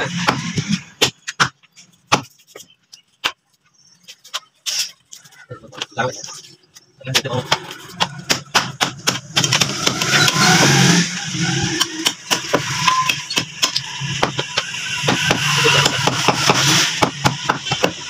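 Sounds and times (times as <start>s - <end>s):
cleavers chopping on wooden blocks: 0.2s - 3.4s, 7.1s - 10.2s, 11.8s - 18.0s.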